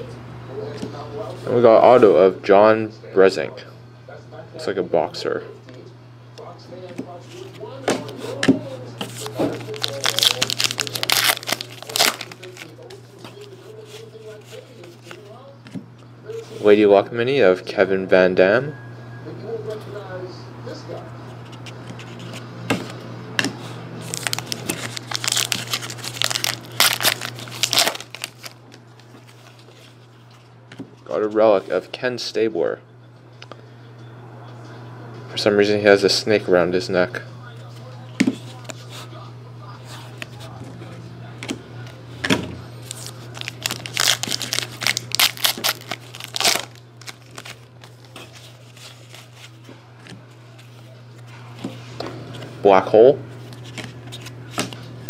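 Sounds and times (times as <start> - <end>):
wrapper tearing and crinkling: 9.2 - 12.8, 24.0 - 29.6, 42.8 - 49.6.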